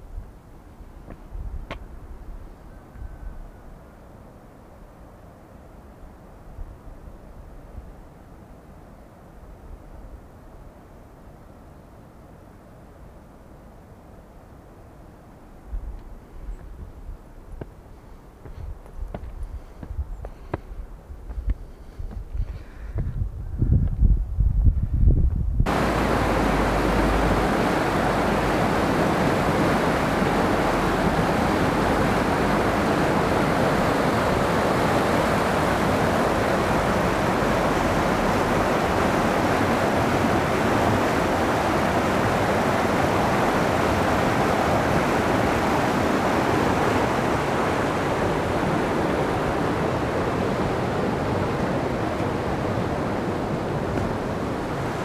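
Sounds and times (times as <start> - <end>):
river rushing over rocks: 25.7 - 55.0.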